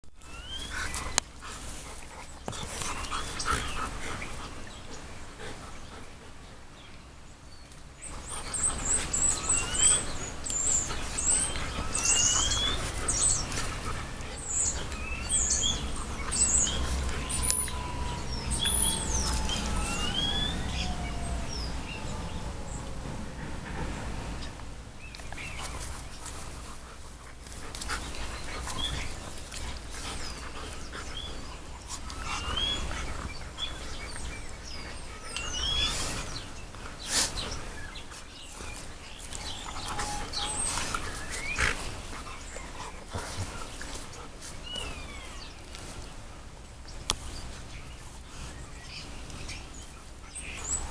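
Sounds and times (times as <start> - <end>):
dogs panting: 0.4 - 6.9, 8.0 - 50.9.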